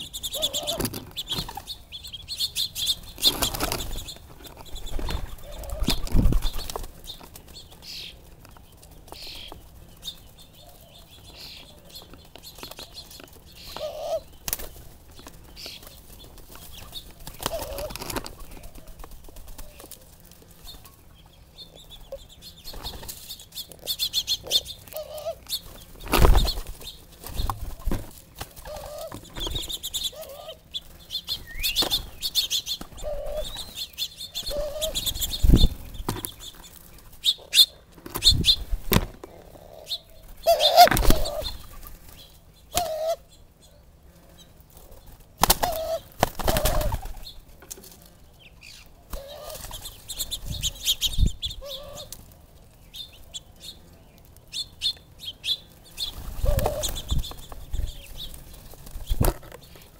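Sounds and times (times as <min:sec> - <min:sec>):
doves' wings flapping: 0:00.0 - 0:21.2, 0:22.0 - 0:39.3, 0:40.1 - 0:43.2, 0:44.7 - 0:48.2, 0:49.1 - 0:52.8, 0:55.7 - 0:59.9
small birds chirping: 0:00.0 - 0:59.9.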